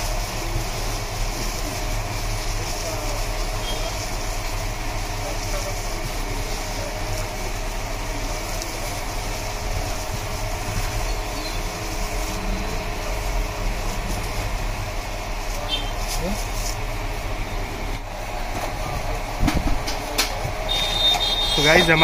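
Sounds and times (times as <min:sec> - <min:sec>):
puffed rice rustling on steel tray: 0:00.0 - 0:17.4
low street hum and rumble: 0:00.0 - 0:22.0.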